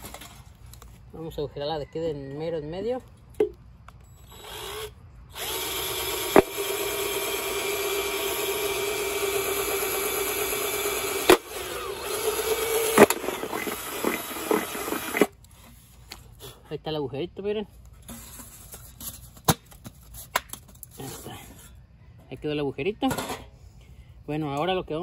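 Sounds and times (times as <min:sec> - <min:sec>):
cordless drill whining: 0:04.2 - 0:15.4.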